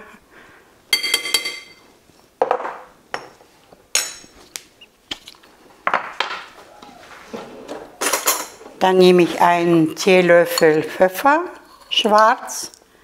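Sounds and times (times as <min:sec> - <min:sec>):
metal teaspoon clinking: 0:00.9 - 0:01.8.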